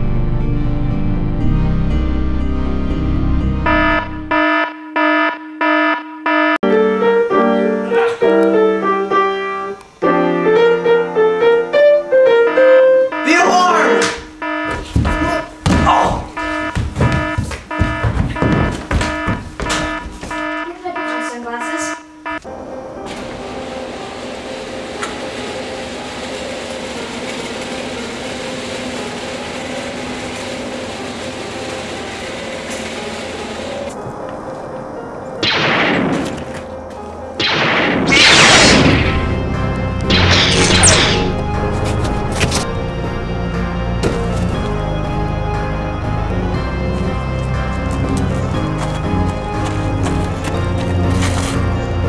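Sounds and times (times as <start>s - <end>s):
piano music: 0.0s - 52.0s
garage door opener rumbling: 22.8s - 34.0s
garage door opener click: 23.0s - 34.0s.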